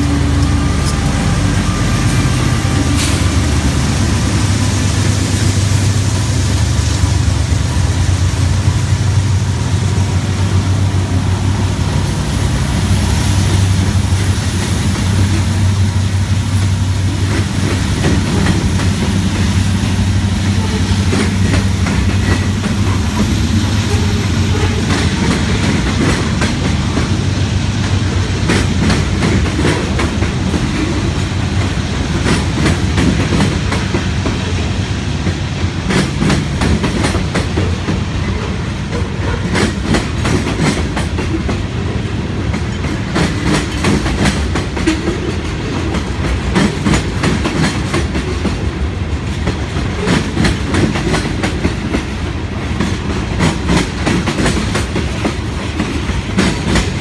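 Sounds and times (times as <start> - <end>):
train wheels rumbling on rail: 0.0 - 57.0
wheels clicking over rail joints: 17.2 - 41.9, 42.5 - 57.0.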